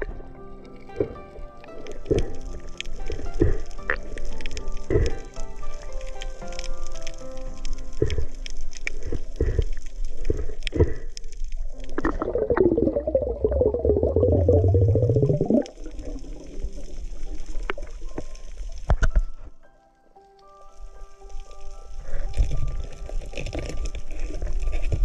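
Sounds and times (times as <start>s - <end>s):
underwater bubbling gurgle: 0.0s - 19.4s.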